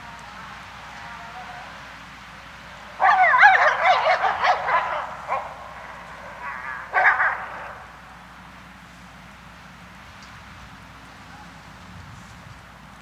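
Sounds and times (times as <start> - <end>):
wind in trees: 0.0 - 13.0
wolves calling: 2.7 - 8.4.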